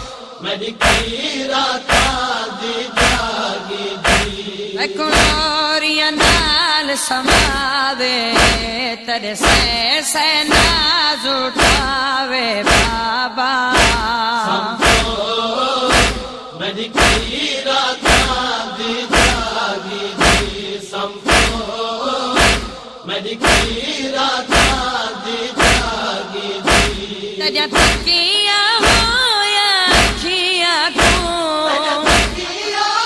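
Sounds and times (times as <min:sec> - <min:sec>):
voices chanting a wavering melody: 0:00.0 - 0:07.7, 0:13.8 - 0:28.1, 0:30.9 - 0:33.0
steady thumping beat: 0:00.8 - 0:01.2, 0:01.9 - 0:02.3, 0:03.0 - 0:04.5, 0:05.1 - 0:05.5, 0:06.2 - 0:06.6, 0:07.3 - 0:07.7, 0:08.3 - 0:08.8, 0:09.4 - 0:09.8, 0:10.5 - 0:10.9, 0:11.5 - 0:12.0, 0:12.6 - 0:13.1, 0:13.8 - 0:14.2, 0:14.8 - 0:15.2, 0:15.9 - 0:16.4, 0:17.0 - 0:17.4, 0:18.0 - 0:18.5, 0:19.1 - 0:19.6, 0:20.2 - 0:20.7, 0:21.3 - 0:21.7, 0:22.4 - 0:22.8, 0:23.4 - 0:23.9, 0:24.5 - 0:24.9, 0:25.6 - 0:29.2, 0:29.9 - 0:30.3, 0:31.0 - 0:32.5.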